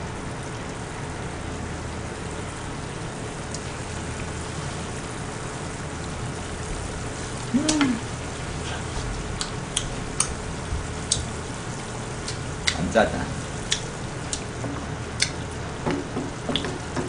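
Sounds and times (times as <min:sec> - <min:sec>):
sauce sizzling in a frying pan: 0:00.0 - 0:17.0
woman exclaiming: 0:07.5 - 0:08.1.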